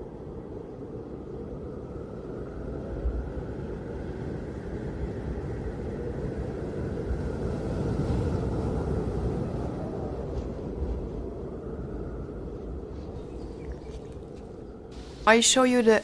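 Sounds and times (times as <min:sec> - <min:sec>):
low rumbling noise: 0:08.5 - 0:15.7.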